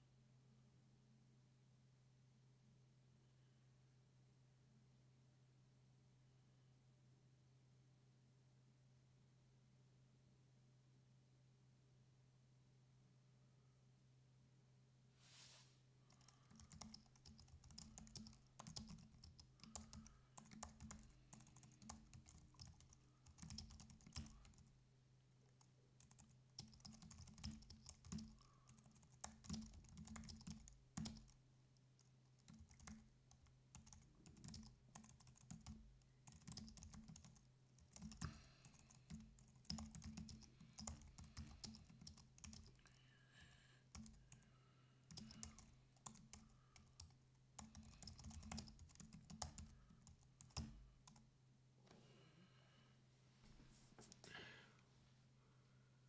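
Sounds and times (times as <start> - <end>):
computer keyboard typing: 16.1 - 24.7, 25.6 - 31.4, 32.0 - 42.8, 43.9 - 44.4, 45.1 - 51.2.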